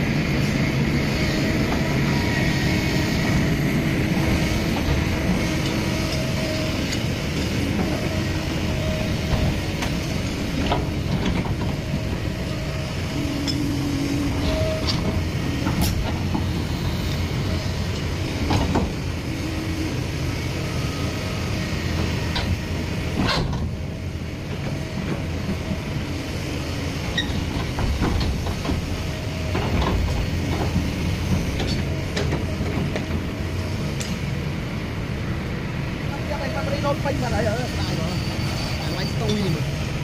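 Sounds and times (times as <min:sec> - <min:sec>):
excavator diesel engine running: 0:00.0 - 0:40.0.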